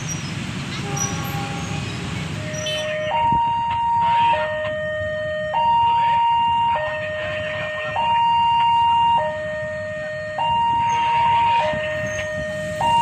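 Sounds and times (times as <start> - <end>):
low traffic rumble: 0.0 - 13.0
level crossing two-tone alarm: 7.7 - 13.0.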